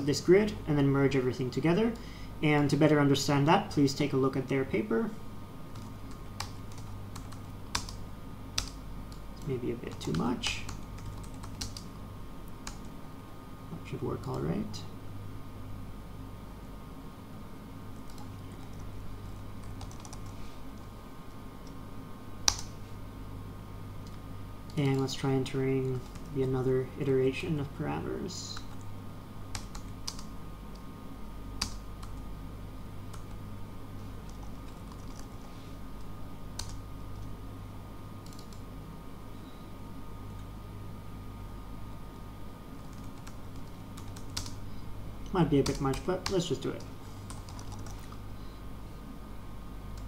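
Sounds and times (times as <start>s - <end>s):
low steady hum: 0.0s - 50.0s
keyboard typing: 5.8s - 8.0s, 8.6s - 11.9s, 19.6s - 20.3s, 29.5s - 30.3s, 34.3s - 35.5s, 38.2s - 38.6s, 42.8s - 44.6s, 47.3s - 48.2s.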